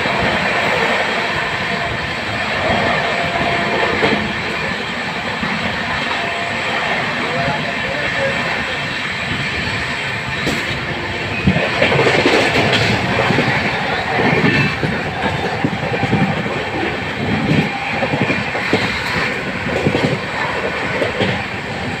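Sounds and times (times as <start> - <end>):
wheels clicking over rail joints: 11.4 - 21.6.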